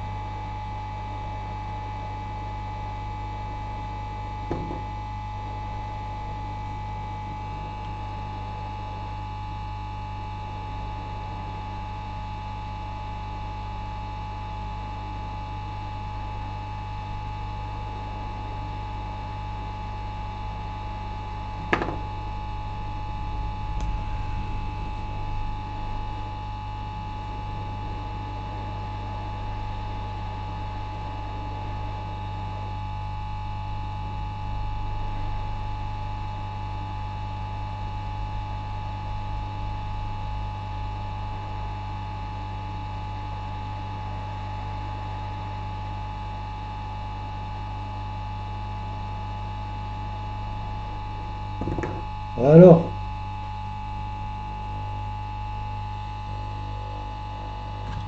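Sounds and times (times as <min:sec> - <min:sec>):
electrical mains hum: 0:00.0 - 0:45.5, 0:46.6 - 0:58.0
low rumbling: 0:21.4 - 0:29.8, 0:50.4 - 0:53.5.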